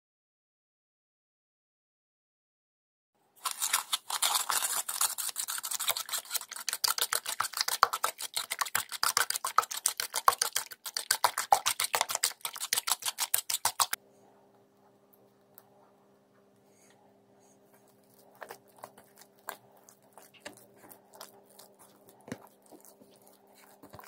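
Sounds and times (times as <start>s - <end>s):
utensil beating eggs in a bowl: 3.4s - 14.0s, 17.6s - 24.0s.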